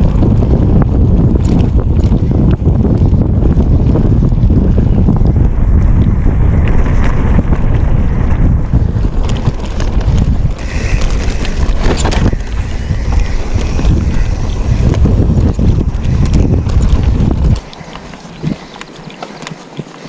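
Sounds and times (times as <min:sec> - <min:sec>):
wind buffeting microphone: 0:00.0 - 0:20.0
bike knocks and rattles: 0:05.3 - 0:20.0.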